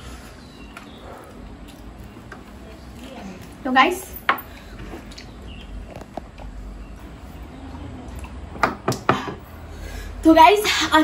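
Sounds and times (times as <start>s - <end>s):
wet eating sounds: 4.6s - 5.5s.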